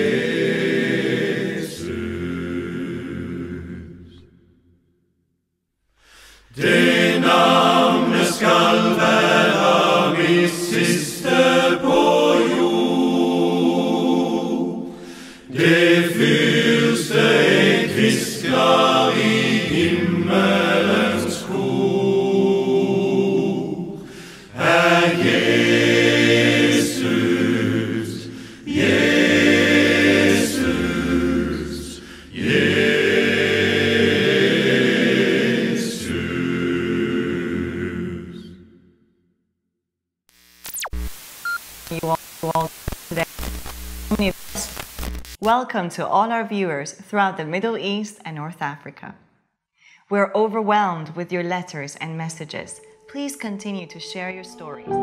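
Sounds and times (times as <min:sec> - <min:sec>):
men singing a cappella: 0:00.0 - 0:04.2, 0:06.5 - 0:38.7.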